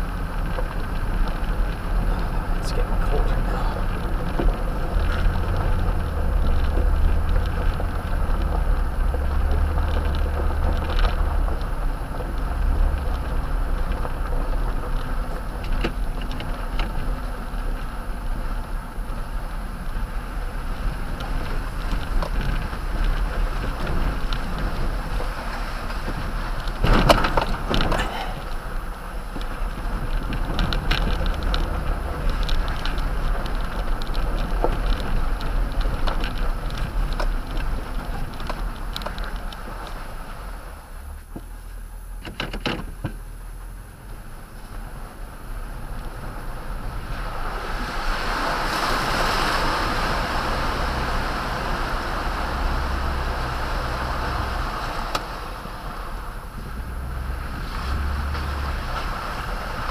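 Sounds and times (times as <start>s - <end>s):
low engine hum: 0.0s - 59.9s
tyre and road noise on gravel: 0.0s - 59.9s
truck rattling over a bump: 21.2s - 43.4s.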